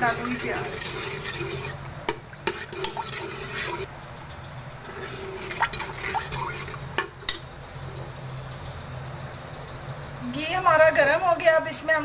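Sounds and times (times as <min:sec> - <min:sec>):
ladle stirring liquid in pot: 0:00.0 - 0:03.9, 0:04.8 - 0:07.4
low steady hum: 0:00.0 - 0:12.0.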